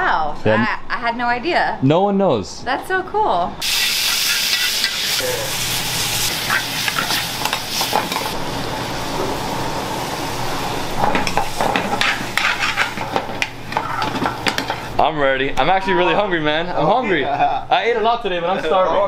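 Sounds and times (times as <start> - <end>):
metal ladles scraping pans: 3.6 - 5.3, 6.2 - 8.4, 10.9 - 15.0
curry sizzling in pans: 3.6 - 15.1.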